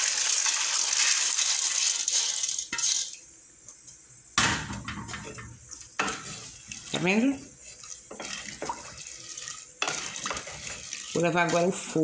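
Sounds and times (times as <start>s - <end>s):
beans and water pouring into pot: 0.0s - 3.2s, 6.6s - 12.0s.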